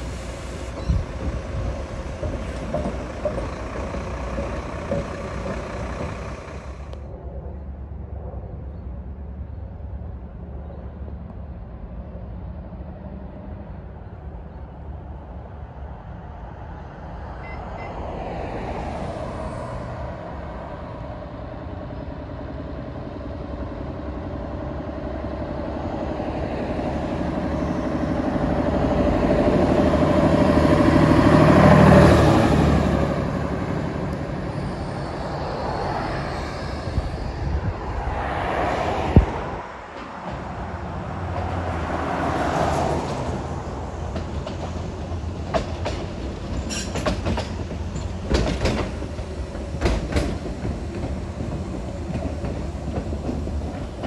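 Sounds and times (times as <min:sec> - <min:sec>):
bus engine running: 0:00.0 - 0:07.3, 0:19.0 - 0:38.2.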